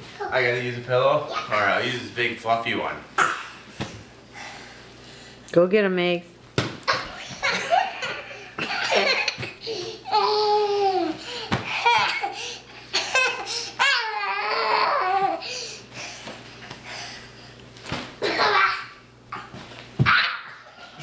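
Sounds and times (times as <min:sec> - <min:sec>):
child laughing: 0:06.9 - 0:15.4, 0:18.2 - 0:19.0.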